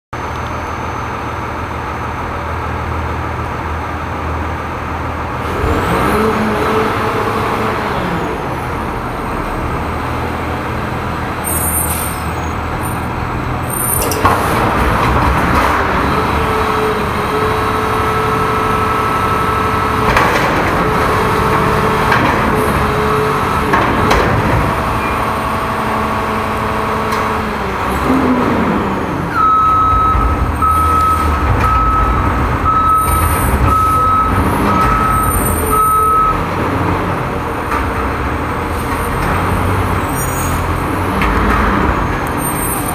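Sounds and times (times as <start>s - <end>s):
diesel engine revving: 1.1s - 42.9s
back-up alarm beeping: 29.4s - 36.4s.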